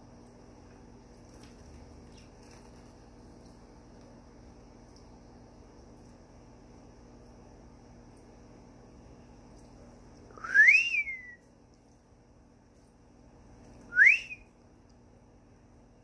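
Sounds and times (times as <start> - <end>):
loud sliding whistles: 10.4 - 11.4, 13.9 - 14.4.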